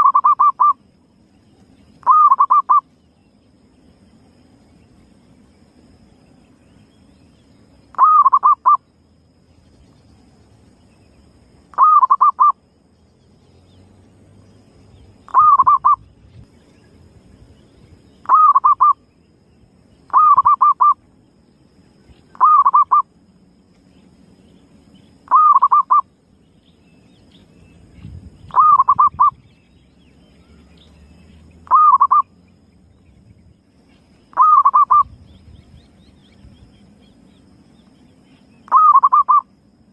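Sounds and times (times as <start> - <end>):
dove cooing: 0.0 - 0.8, 2.0 - 2.8, 8.0 - 8.8, 11.7 - 12.6, 15.3 - 16.0, 18.2 - 19.0, 20.1 - 21.0, 22.3 - 23.1, 25.3 - 26.0, 28.5 - 29.4, 31.6 - 32.3, 34.3 - 35.2, 38.7 - 39.4.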